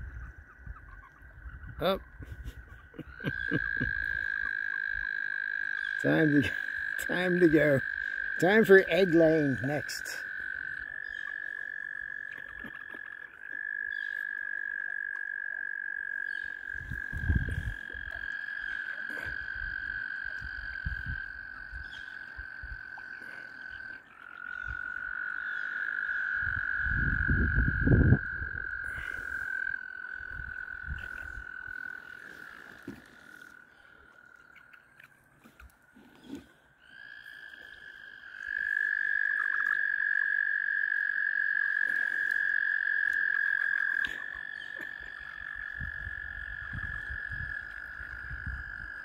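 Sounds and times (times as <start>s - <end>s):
frogs trilling: 0.0s - 49.0s.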